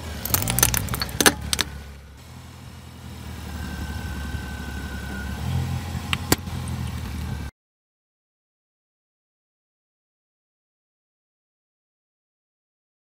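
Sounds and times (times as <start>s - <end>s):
metallic crunch under car tyre: 0.0s - 1.8s
car engine running at low speed: 0.0s - 7.5s
eggs cracking under tyre: 0.2s - 1.7s.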